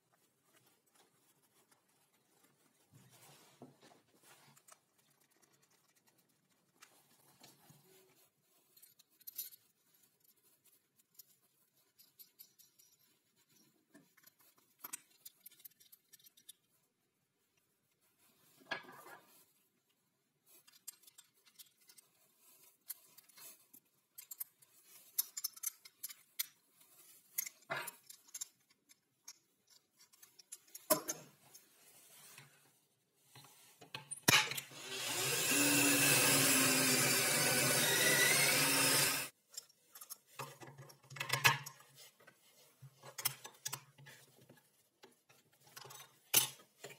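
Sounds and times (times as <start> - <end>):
metal bolt and washers clicking: 24.1 - 26.6, 27.4 - 31.3
power tool running: 34.7 - 39.3.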